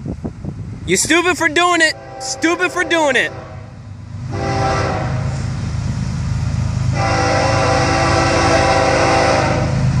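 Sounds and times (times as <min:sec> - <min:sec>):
locomotive rumble: 0:00.0 - 0:10.0
train air horn chord: 0:01.9 - 0:05.4, 0:06.9 - 0:09.8.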